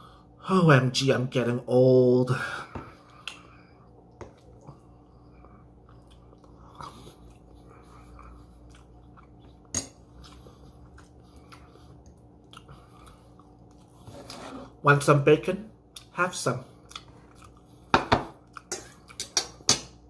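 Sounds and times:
faint low hum: 0.0 - 20.0
person chewing food: 3.0 - 14.3, 16.8 - 20.0.

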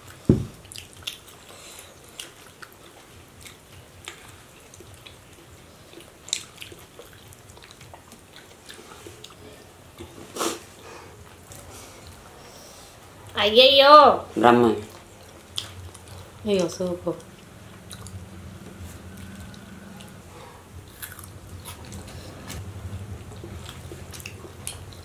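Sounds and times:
chewing: 0.0 - 12.4, 14.8 - 25.0
thump: 0.3 - 0.6.

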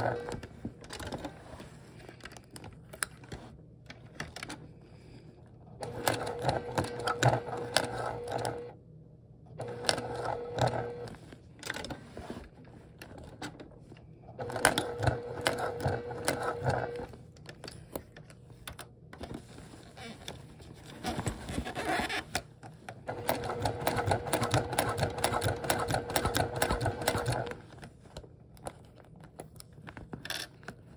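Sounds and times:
sewing machine motor hum: 0.0 - 1.3, 5.8 - 8.8, 9.5 - 11.9, 14.3 - 17.2, 23.0 - 27.7
sewing machine needle clatter: 23.1 - 27.6.

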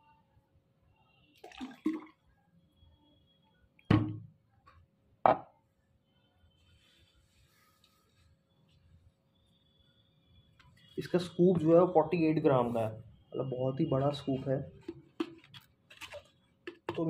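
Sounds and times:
bottle handling noises: 3.9 - 4.3, 14.0 - 17.0
bottles knocking on table: 3.9 - 4.3, 5.3 - 5.5.

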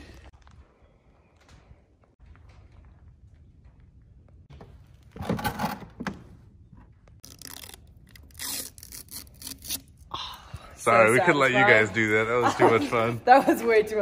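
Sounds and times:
plastic film crackling and tearing: 7.2 - 9.8.

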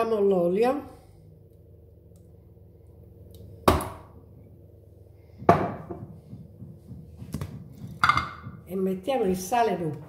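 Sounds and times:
items knocking on hard worktop: 5.4 - 8.7.

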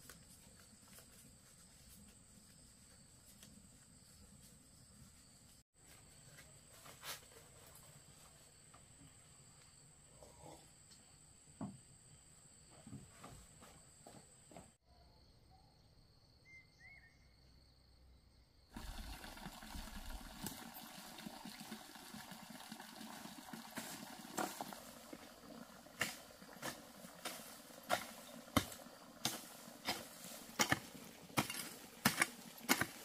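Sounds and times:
broom sweeping dry leaves: 25.9 - 33.0.

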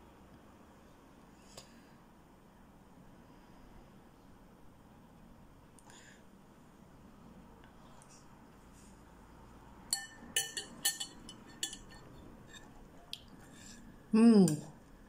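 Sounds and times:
metal spoon clinking ceramic bowl: 9.9 - 12.7.

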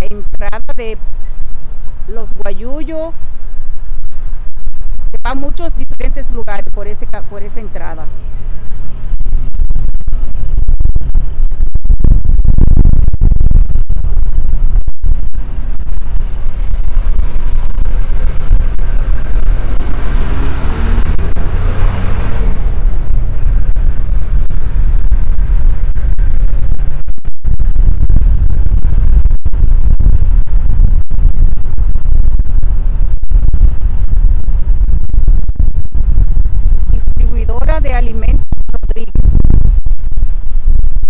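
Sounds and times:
road traffic rumble: 0.0 - 40.5
vehicle passing: 16.6 - 24.8.

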